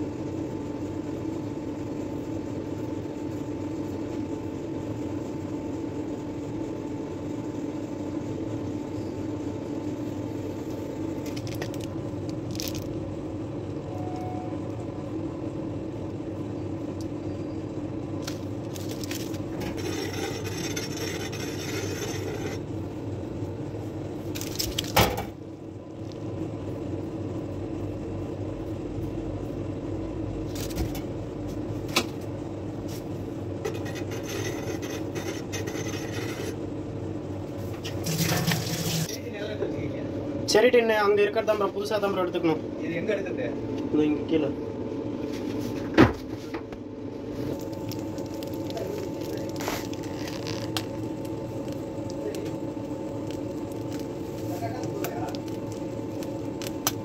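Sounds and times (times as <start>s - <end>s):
steady machine hum: 0.0s - 57.0s
cake comb scraping frosting: 19.7s - 22.6s, 33.7s - 36.6s.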